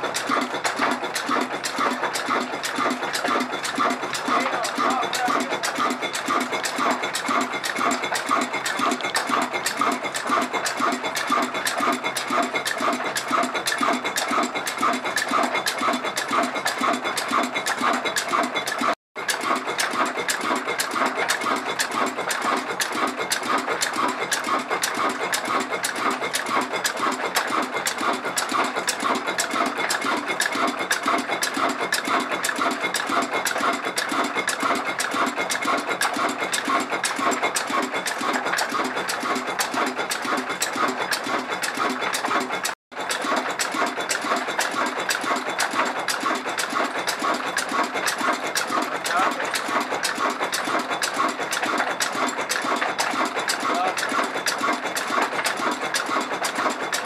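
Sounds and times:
diesel engine pulsing: 0.0 - 57.0.

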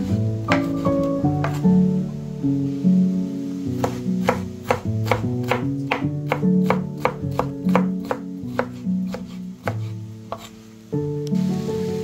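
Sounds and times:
acoustic guitar music: 0.0 - 12.0
knife dicing on wooden board: 0.5 - 1.6, 3.8 - 10.5.

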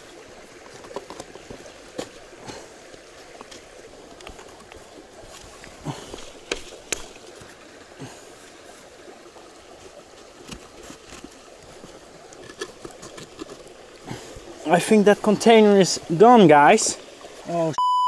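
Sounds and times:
forest stream rushing: 0.0 - 17.8.

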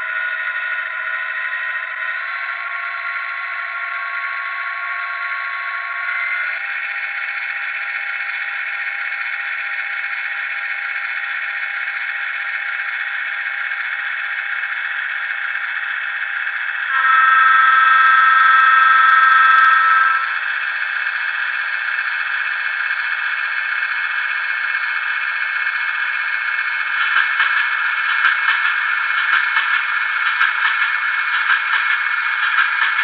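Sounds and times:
model locomotive diesel engine sound: 0.0 - 33.0
multi-tone air horn: 16.9 - 20.4.

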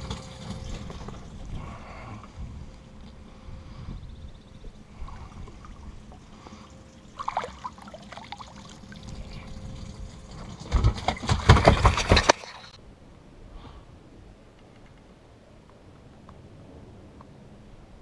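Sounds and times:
fish splashing at surface: 5.5 - 12.6
fish thrashing and slapping: 7.0 - 12.8.

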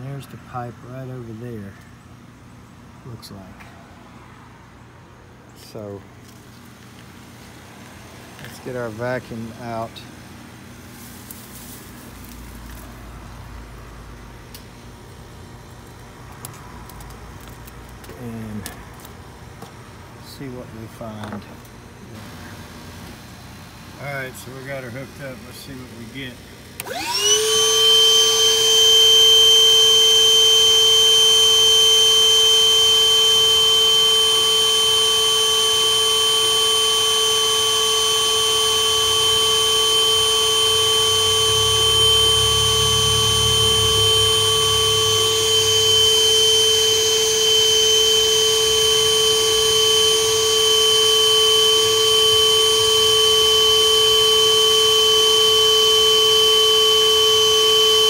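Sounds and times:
shop vacuum motor whine: 5.5 - 58.0
low rumble: 41.4 - 45.5.

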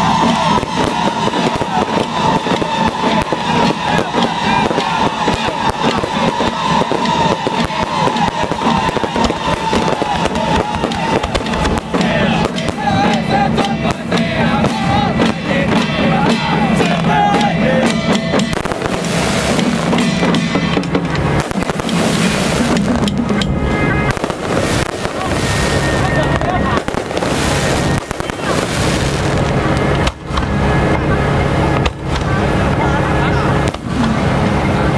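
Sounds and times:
loud music with melody: 0.0 - 25.8
fireworks popping and crackling: 0.0 - 34.9.

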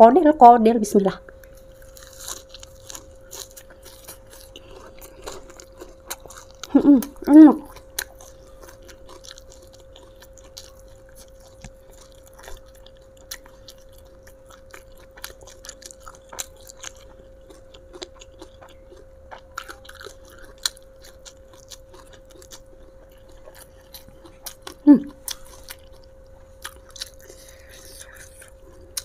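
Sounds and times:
faint steady hum: 0.0 - 29.0
person chewing leaves: 1.2 - 29.0.

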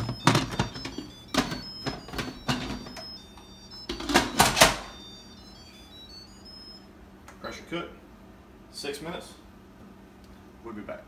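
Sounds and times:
short high beeps: 0.0 - 6.9.

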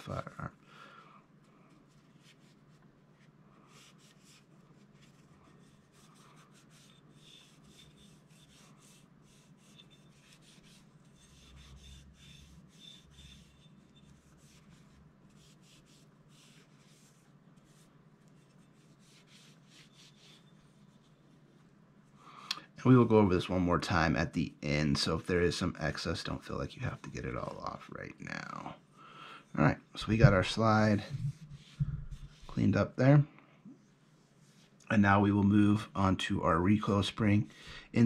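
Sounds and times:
low steady hum: 0.0 - 38.0
cloth rubbing on metal: 1.5 - 22.2, 25.9 - 28.7, 29.5 - 33.1, 33.9 - 34.8.

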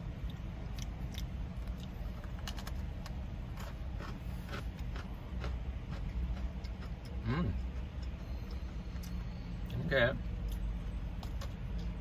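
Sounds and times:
low steady rumble: 0.0 - 12.0
cookie crunching: 0.2 - 9.1.

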